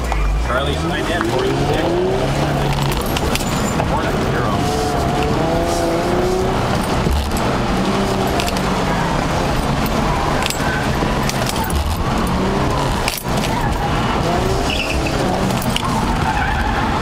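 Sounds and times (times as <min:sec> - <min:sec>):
car engine working hard: 0:00.0 - 0:17.0
road noise: 0:00.0 - 0:17.0
loose items rattling: 0:02.5 - 0:05.3, 0:06.2 - 0:13.9.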